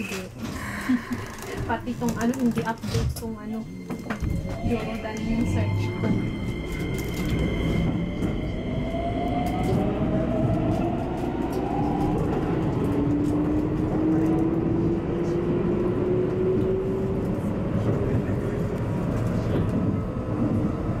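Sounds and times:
traction motor whine rising: 0:04.0 - 0:16.9.

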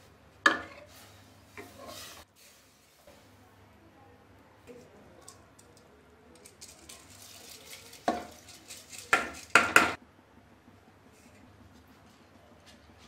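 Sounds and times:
rice sliding into liquid: 0:00.8 - 0:03.1.

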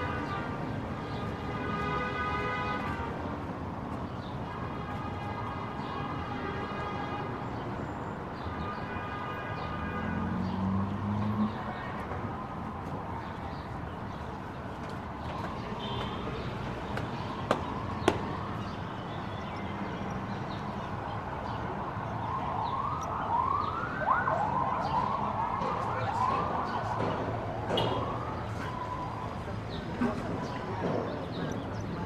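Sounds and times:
city street noise: 0:00.0 - 0:32.0
emergency vehicle siren: 0:09.8 - 0:29.7.

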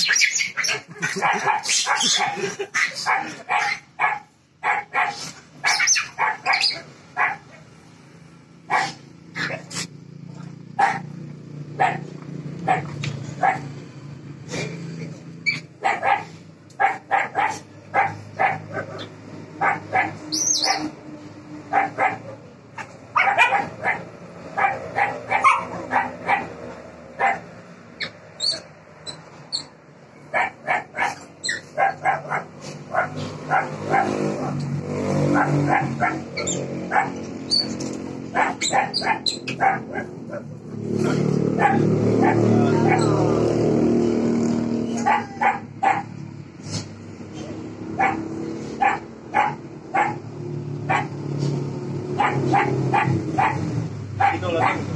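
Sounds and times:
dog barking: 0:00.0 - 0:07.7, 0:08.7 - 0:09.7, 0:10.8 - 0:11.2, 0:11.8 - 0:13.8, 0:15.5 - 0:20.9, 0:21.7 - 0:27.5, 0:30.3 - 0:34.6, 0:35.2 - 0:37.7, 0:38.3 - 0:43.2, 0:45.0 - 0:46.1, 0:47.9 - 0:50.2, 0:50.8 - 0:51.2, 0:52.1 - 0:54.9.

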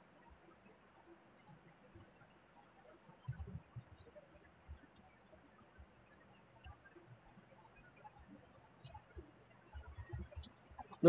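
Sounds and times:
keyboard typing clicks: 0:03.2 - 0:06.8, 0:07.8 - 0:11.0.

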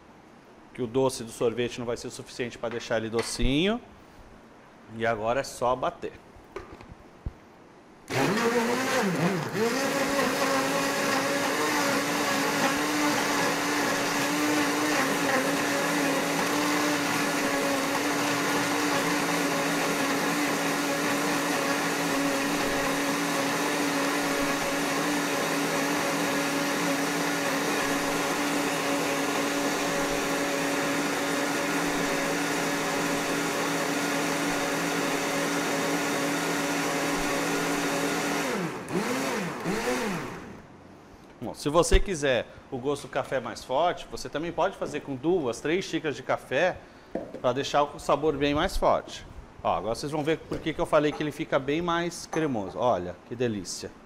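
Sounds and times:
electric blender motor running: 0:08.1 - 0:40.6.

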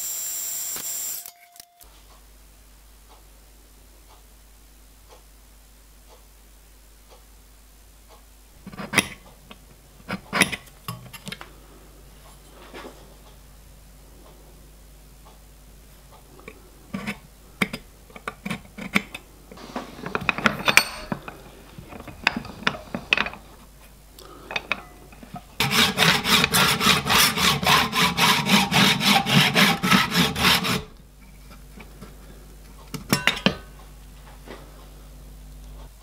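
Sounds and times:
tools clicking and scraping: 0:08.6 - 0:11.5, 0:16.1 - 0:27.4
hacksaw cutting metal: 0:20.3 - 0:21.3, 0:25.6 - 0:31.0.

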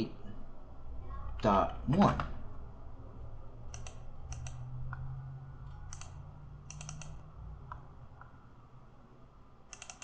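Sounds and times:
low steady hum: 0:00.0 - 0:10.0
computer mouse clicking: 0:03.7 - 0:08.4, 0:09.7 - 0:10.0.

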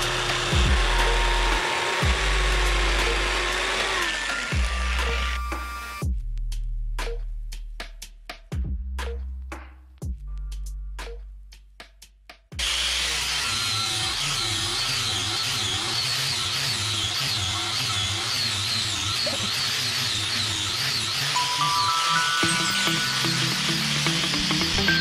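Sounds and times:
music with drum beat: 0:00.0 - 0:03.8, 0:06.0 - 0:12.6
angle grinder sanding wood: 0:00.0 - 0:06.0, 0:12.6 - 0:25.0.

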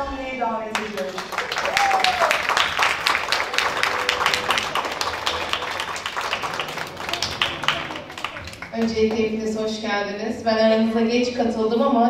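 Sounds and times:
audience applauding: 0:00.7 - 0:09.4.

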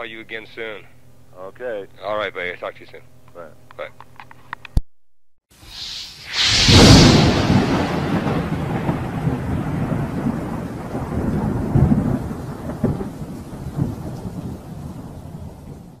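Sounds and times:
deep rumble: 0:06.4 - 0:11.9.

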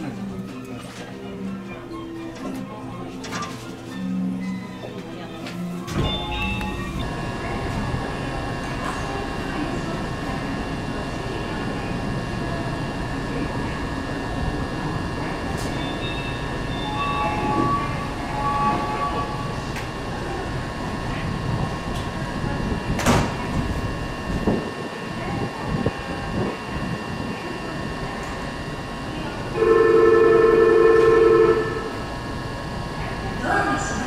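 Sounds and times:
equipment hum: 0:00.0 - 0:34.0
electronic tone sequence: 0:05.9 - 0:08.6, 0:14.2 - 0:21.1
fixed tones: 0:15.6 - 0:20.0.

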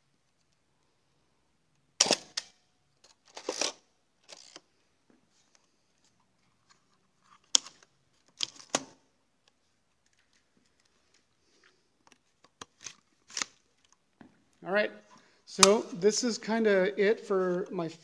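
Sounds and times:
camera mechanism clicks and clacks: 0:02.0 - 0:04.6.

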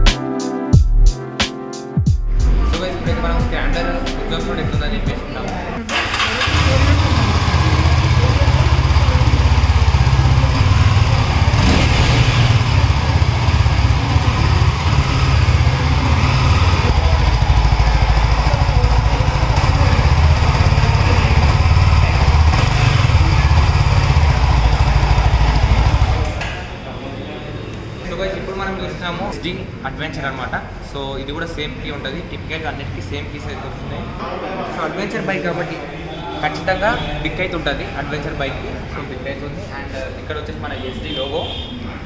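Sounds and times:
motorcycle engine running: 0:05.9 - 0:26.4.

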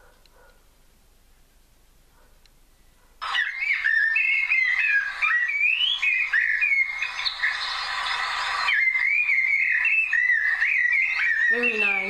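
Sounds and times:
blackbird singing: 0:03.2 - 0:12.0.

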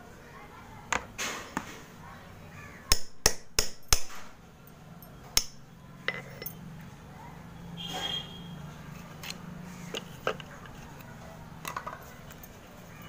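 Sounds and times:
sharp clinks: 0:04.6 - 0:06.7.

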